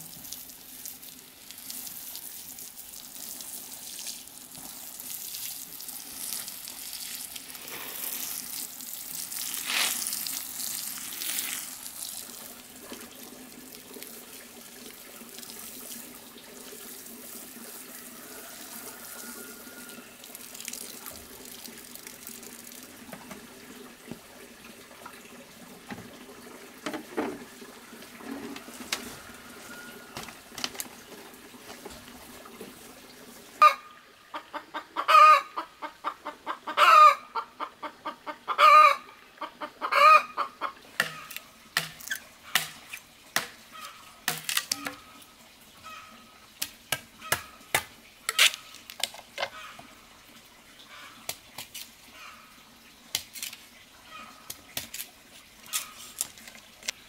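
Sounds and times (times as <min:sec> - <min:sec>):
water pouring onto soil: 0:00.0 - 0:33.6
chickens calling loudly: 0:33.6 - 0:41.4
chickens clucking: 0:33.6 - 0:41.4.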